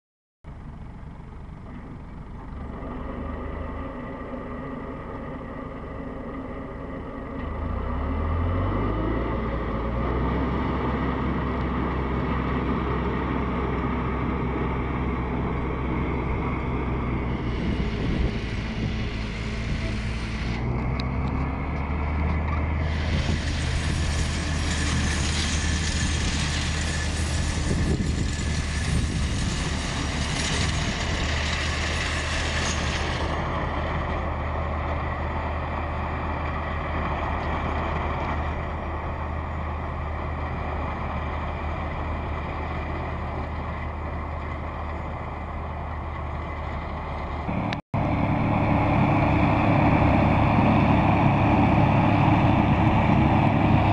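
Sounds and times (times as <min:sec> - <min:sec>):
tractor diesel engine: 0:00.4 - 0:53.9
hiss of mulcher chopping grass: 0:17.2 - 0:20.8, 0:22.7 - 0:33.8.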